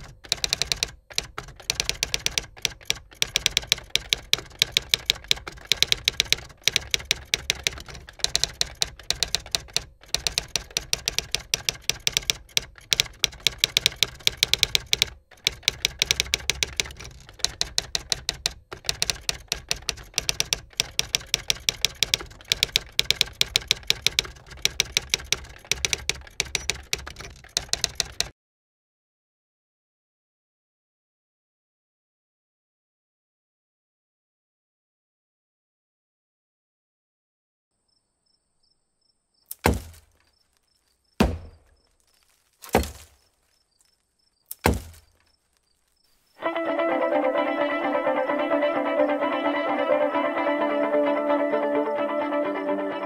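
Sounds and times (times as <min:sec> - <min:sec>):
typewriter keys clacking: 0:00.0 - 0:28.3, 0:39.5 - 0:40.2, 0:44.5 - 0:45.2.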